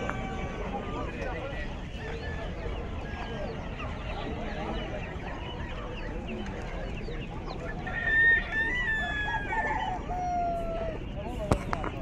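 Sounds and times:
small birds calling: 0.0s - 12.0s
rooster crowing: 7.8s - 11.0s.

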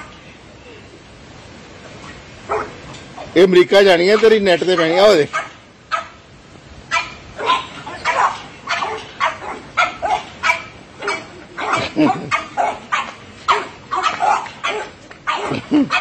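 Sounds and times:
small dogs barking: 2.5s - 2.8s, 4.1s - 6.2s, 6.9s - 16.0s.

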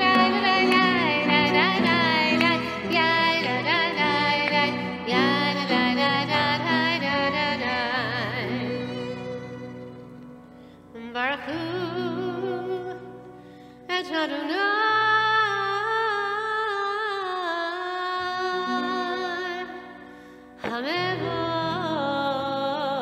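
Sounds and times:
woman singing with vibrato: 0.0s - 9.6s, 11.0s - 13.3s, 13.9s - 19.9s, 20.6s - 23.0s
instrumental accompaniment: 0.0s - 13.6s.

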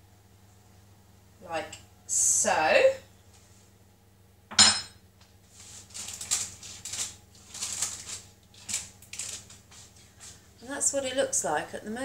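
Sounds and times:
baking paper crinkling: 5.2s - 11.0s.

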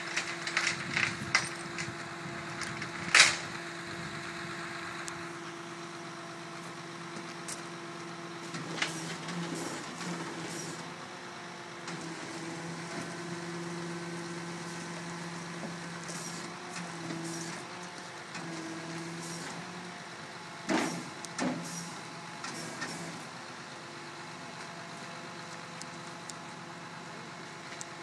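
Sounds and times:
vehicle engine idling: 0.0s - 8.5s.

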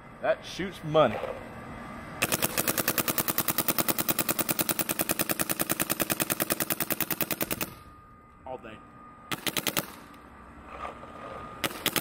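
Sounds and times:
paintball marker rapid firing: 2.2s - 7.8s, 9.3s - 10.1s, 11.6s - 12.0s.

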